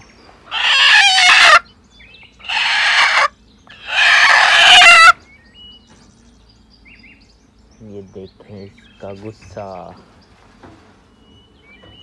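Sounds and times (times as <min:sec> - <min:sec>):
hen screeching: 0:00.5 - 0:01.6, 0:02.4 - 0:05.2.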